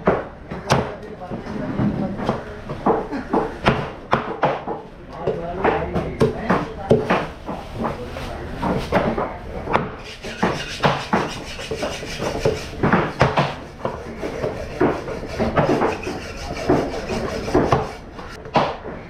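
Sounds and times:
knife chopping on wooden block: 0:09.8 - 0:18.0.

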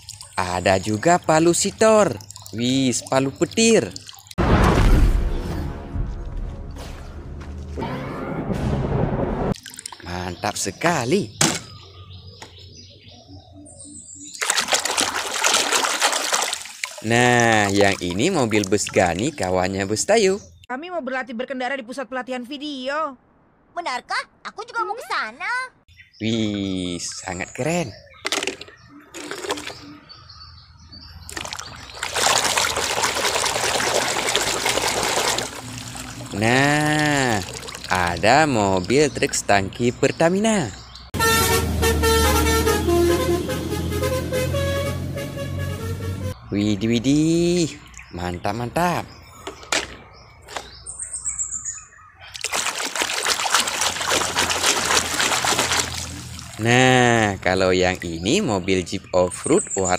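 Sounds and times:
splashing soapy water: 0:14.3 - 0:19.5, 0:29.2 - 0:29.9, 0:31.3 - 0:38.6, 0:52.4 - 0:57.0.

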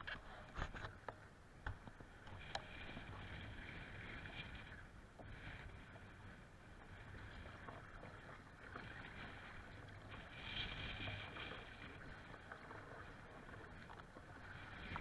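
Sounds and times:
wave surging over bow: 0:01.3 - 0:15.0
water slapping against kayak: 0:06.8 - 0:15.0.

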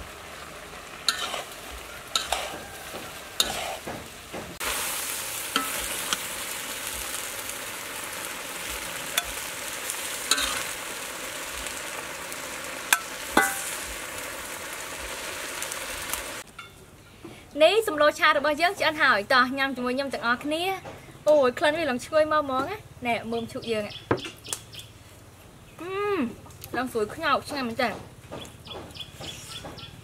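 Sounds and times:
food sizzling in a wok: 0:00.0 - 0:16.5
metal spatula clinking and scraping: 0:01.1 - 0:02.7, 0:03.4 - 0:03.8, 0:09.1 - 0:09.4, 0:10.3 - 0:10.7, 0:12.9 - 0:13.8.

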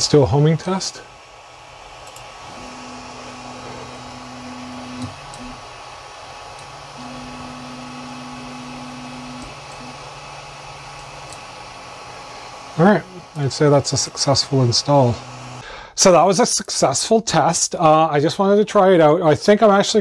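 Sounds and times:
stepper motor humming: 0:00.0 - 0:15.6
cooling fans running: 0:00.0 - 0:15.8
motor bump: 0:01.2 - 0:15.6.

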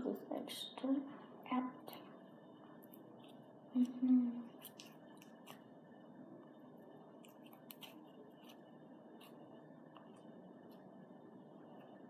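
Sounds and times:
sticky clicks of slime: 0:04.6 - 0:05.6.

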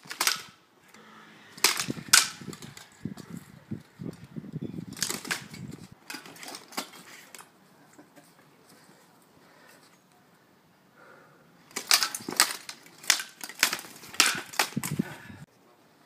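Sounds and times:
training swords clacking: 0:00.0 - 0:01.0, 0:01.6 - 0:03.5, 0:04.1 - 0:08.4, 0:11.6 - 0:15.5.

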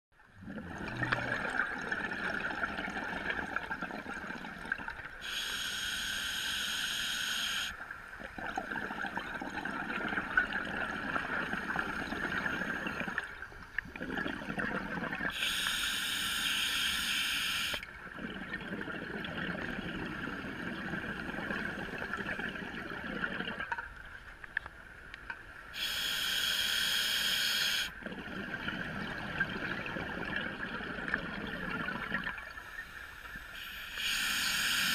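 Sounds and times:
exhaled bubbles rushing: 0:00.3 - 0:05.1, 0:08.2 - 0:15.4, 0:18.0 - 0:23.7, 0:28.0 - 0:32.6
diver breathing through regulator: 0:33.6 - 0:34.9.

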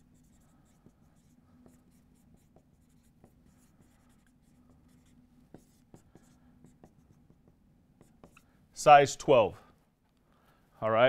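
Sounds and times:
marker writing on whiteboard: 0:00.0 - 0:08.6.

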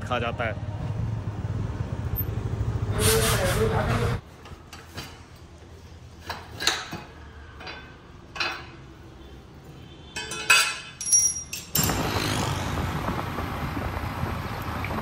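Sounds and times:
metal clanking on tiled floor: 0:06.3 - 0:08.8, 0:10.2 - 0:12.1.

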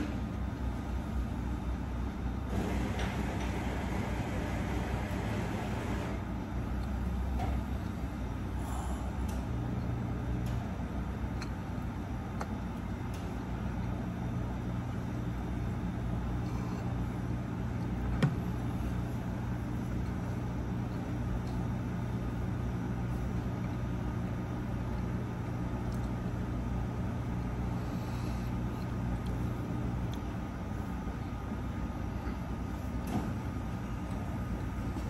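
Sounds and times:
low background hum: 0:00.0 - 0:35.0.

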